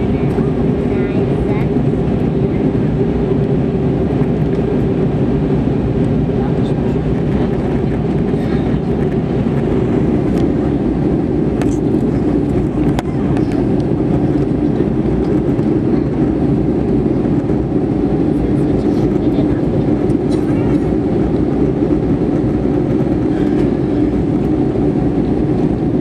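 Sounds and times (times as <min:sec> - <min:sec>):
airplane cabin drone: 0:00.0 - 0:26.0.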